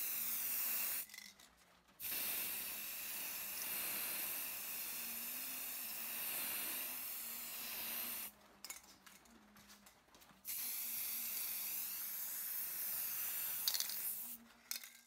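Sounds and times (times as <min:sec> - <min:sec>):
spray paint hissing: 0:00.0 - 0:01.2, 0:02.0 - 0:08.3, 0:10.4 - 0:14.8.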